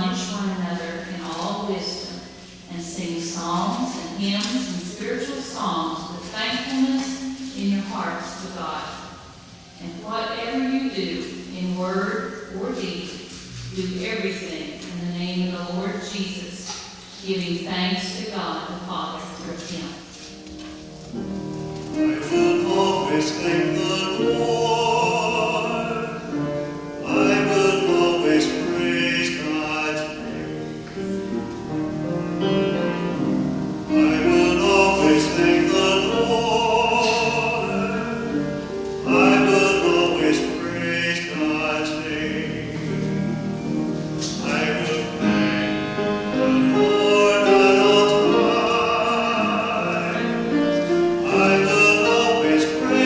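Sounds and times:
instrumental accompaniment: 19.6 - 53.0
solo voice singing sacred song: 22.0 - 31.2, 33.7 - 43.2, 44.2 - 45.3, 46.3 - 53.0.

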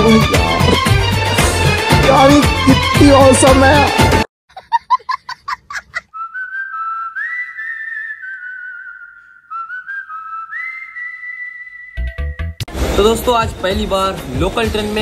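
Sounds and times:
person whistling a tune: 6.1 - 12.6.

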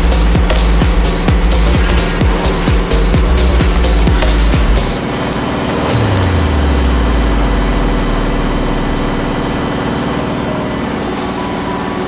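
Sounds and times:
deep hum: 0.0 - 12.0.

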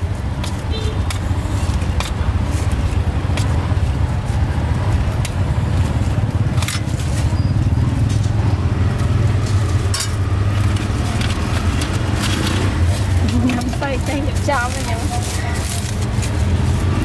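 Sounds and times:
low rumble of street traffic: 0.0 - 17.0
crusty bread crackling: 8.8 - 17.0.

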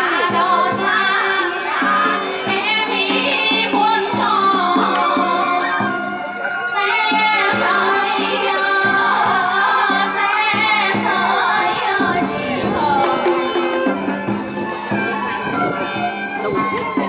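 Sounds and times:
women singing folk song: 0.0 - 5.9, 6.7 - 13.9
traditional instrument ensemble: 0.0 - 17.0.

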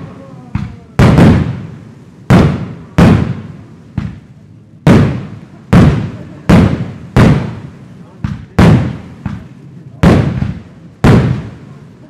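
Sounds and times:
fireworks bangs with echo: 0.0 - 12.0.

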